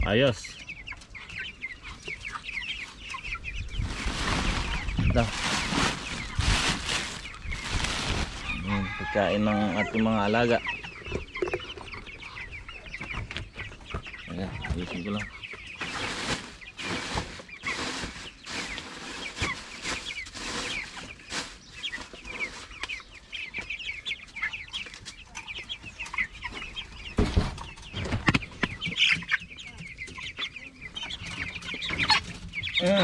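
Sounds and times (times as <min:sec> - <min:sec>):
chicks peeping and clucking: 0:00.0 - 0:33.0.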